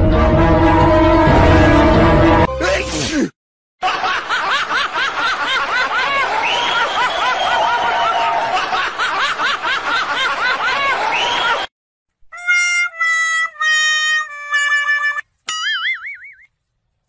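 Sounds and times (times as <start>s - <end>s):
high-pitched giggles: 12.4s - 15.6s.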